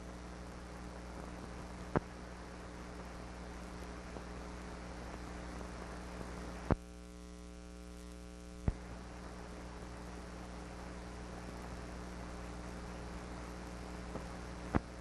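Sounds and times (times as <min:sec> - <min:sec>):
film soundtrack hiss: 0:00.0 - 0:15.0
mains hum: 0:00.0 - 0:15.0.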